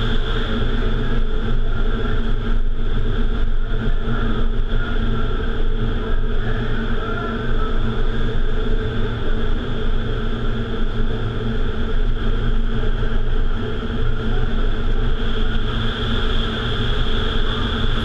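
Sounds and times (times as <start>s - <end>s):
constant fan hum: 0.0s - 18.0s
wind tunnel air rushing: 0.0s - 18.0s.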